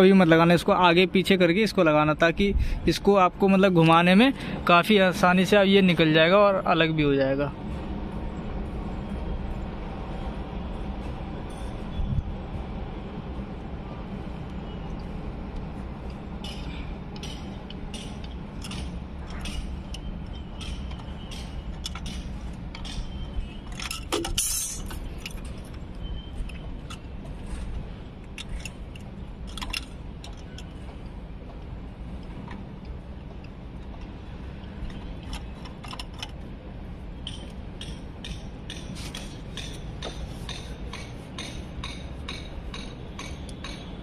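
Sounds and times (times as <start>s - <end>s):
steady low rumble: 6.5s - 43.2s
plastic parts clicking and tapping: 34.8s - 36.4s.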